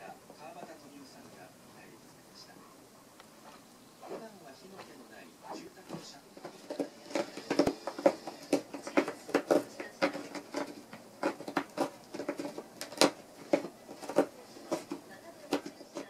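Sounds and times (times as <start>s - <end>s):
cat scratching at box: 5.8s - 16.0s.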